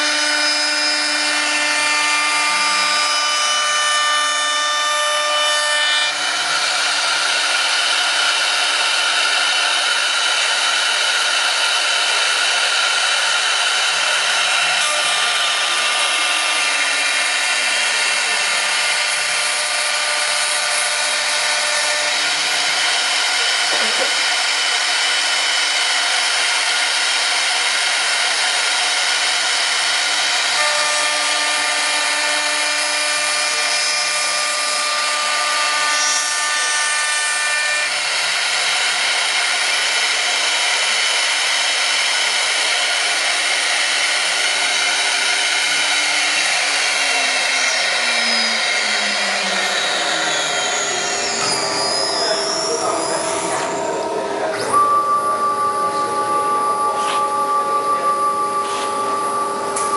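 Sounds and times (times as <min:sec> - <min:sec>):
steady tones: 0:00.0 - 0:23.8, 0:40.4 - 0:59.9
spindle whine: 0:00.0 - 0:59.9
wood being cut: 0:00.0 - 0:59.9
low falling tone: 0:46.7 - 0:59.9.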